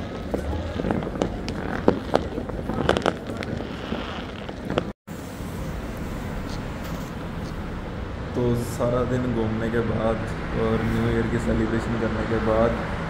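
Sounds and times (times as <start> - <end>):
firecrackers banging: 0.0 - 7.9
steady background noise: 0.0 - 13.0.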